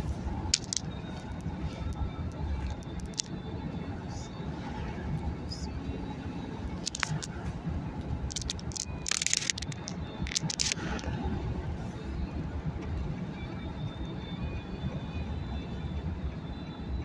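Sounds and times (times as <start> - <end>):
car road and engine noise: 0.0 - 17.0
crackling and scraping clicks: 0.5 - 3.3, 6.8 - 7.4, 8.3 - 11.1.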